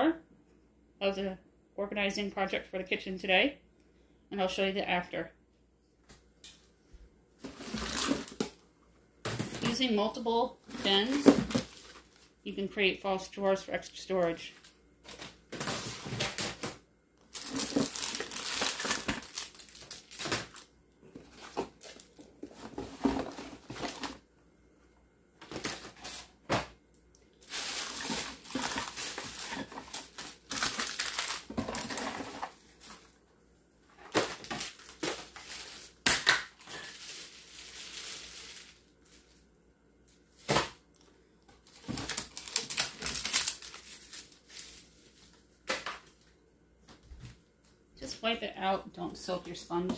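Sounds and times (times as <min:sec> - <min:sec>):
plastic packaging crinkling: 0:07.4 - 0:08.6, 0:10.6 - 0:12.4, 0:14.5 - 0:24.2, 0:27.4 - 0:33.1, 0:34.0 - 0:39.4, 0:40.2 - 0:46.3.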